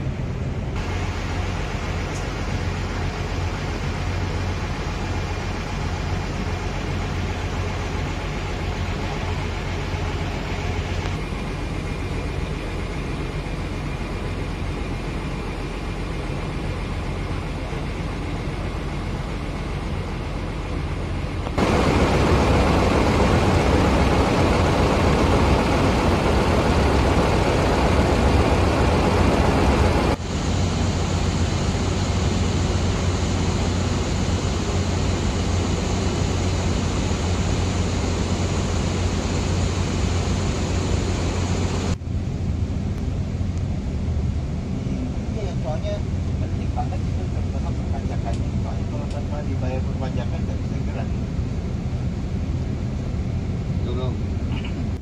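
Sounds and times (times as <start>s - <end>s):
diesel coaches idling: 0.8s - 44.0s.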